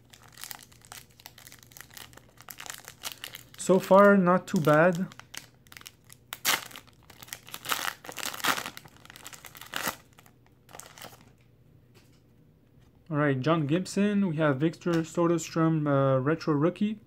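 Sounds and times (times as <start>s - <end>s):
foil wrapper tearing and crinkling: 0.0s - 11.3s.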